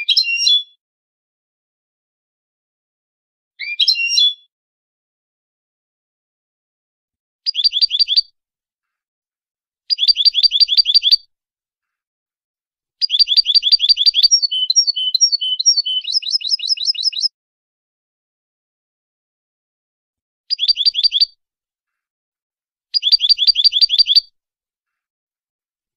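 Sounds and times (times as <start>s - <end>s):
goldfinch singing: 7.5s - 8.3s, 9.9s - 11.2s, 13.0s - 17.3s, 20.5s - 21.4s, 23.0s - 24.3s.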